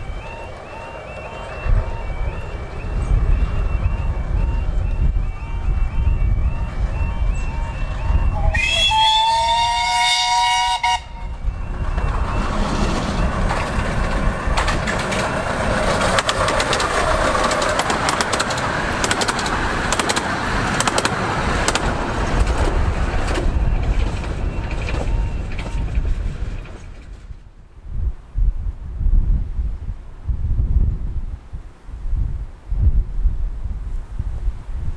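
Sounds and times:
steam locomotive whistle chord: 0.0s - 11.8s
train rushing past: 0.0s - 27.7s
sharp clicks of train wheels: 11.8s - 27.5s.

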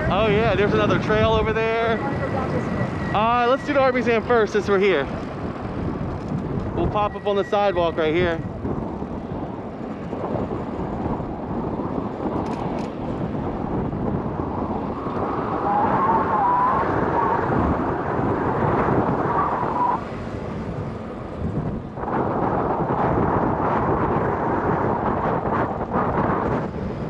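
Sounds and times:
traffic noise: 0.0s - 27.0s
wind rushing over microphone: 0.0s - 27.0s
wavering tone: 0.6s - 4.4s.

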